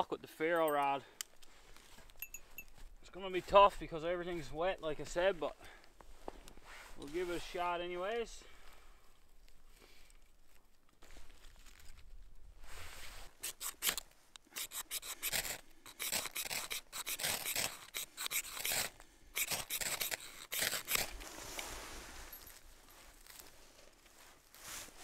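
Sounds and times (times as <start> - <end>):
ferro rod scraped by striker: 13.4 - 21.7.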